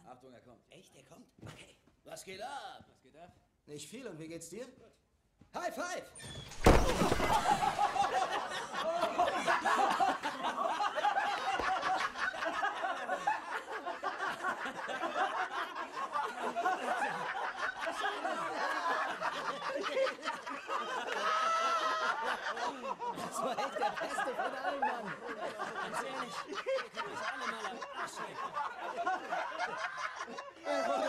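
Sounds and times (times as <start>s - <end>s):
loud thump: 6.4s - 8.0s
men laughing: 6.7s - 31.0s.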